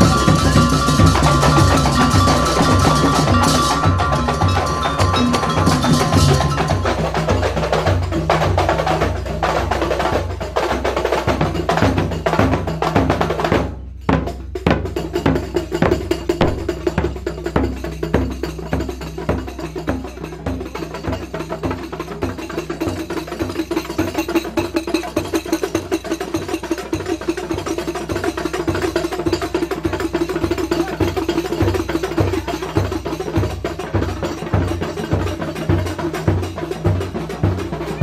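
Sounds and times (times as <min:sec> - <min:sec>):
frame drums playing: 0:00.0 - 0:38.0
deep drum hits: 0:15.8 - 0:17.2.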